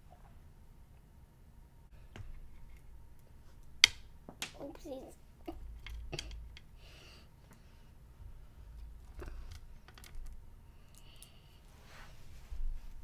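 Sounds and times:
soft rustles: 11.6s - 13.0s.

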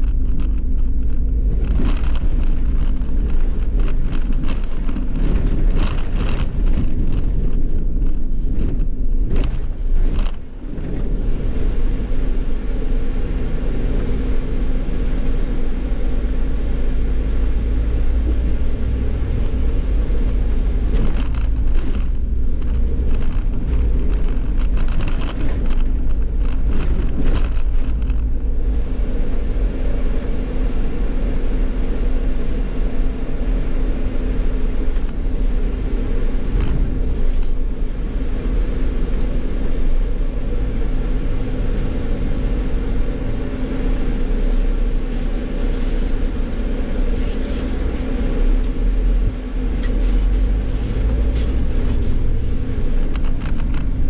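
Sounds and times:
rapid clicks and rattles: 0.0s - 11.1s, 19.3s - 28.6s, 49.3s - 54.0s
bus engine and road rumble: 0.0s - 54.0s.

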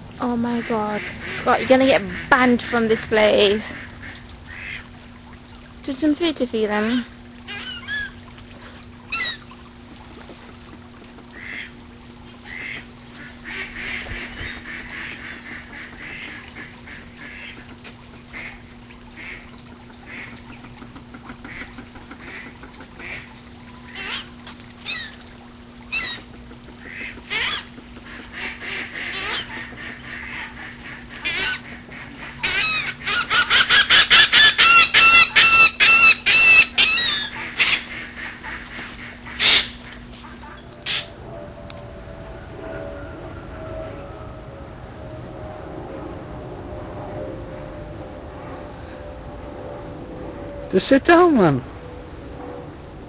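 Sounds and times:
steady low hum: 0.0s - 53.0s
birds squawking: 6.7s - 9.6s, 11.3s - 17.7s, 18.3s - 25.2s, 25.9s - 27.8s, 28.4s - 41.2s.

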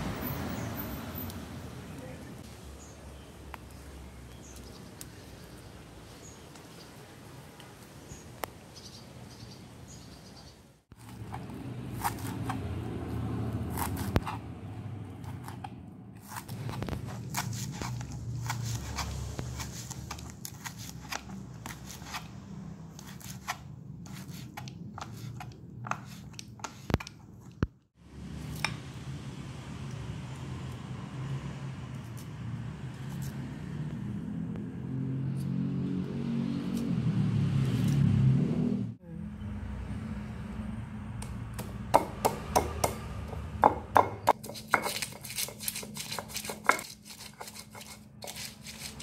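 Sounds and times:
knife chopping on plastic board: 41.6s - 45.2s.

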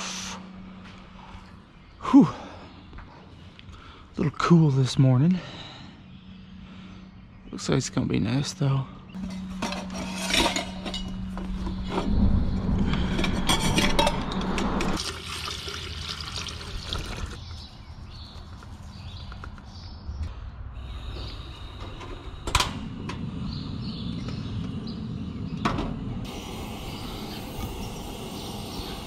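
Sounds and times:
water pouring into a pot: 15.0s - 17.4s
gas flame rushing: 21.1s - 29.0s.

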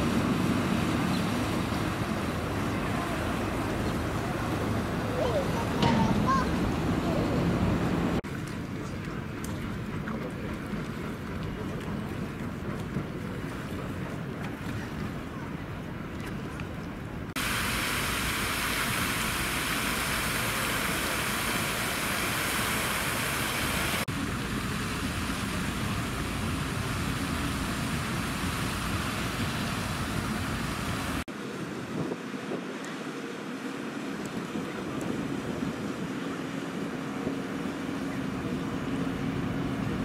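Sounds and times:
city traffic noise: 0.0s - 8.2s, 20.4s - 31.4s.

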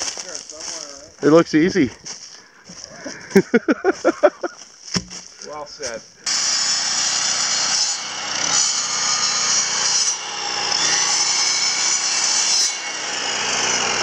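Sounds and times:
miter saw cutting wood: 6.2s - 14.0s.

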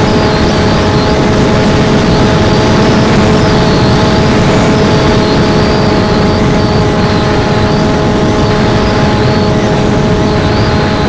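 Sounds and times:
electric motor and propeller droning: 0.0s - 11.0s
wind rush on microphone: 0.0s - 11.0s.

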